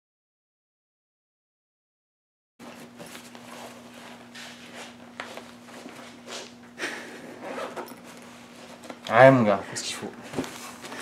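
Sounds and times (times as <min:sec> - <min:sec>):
shuffling footsteps: 0:02.6 - 0:06.7, 0:07.3 - 0:09.3, 0:10.1 - 0:11.0.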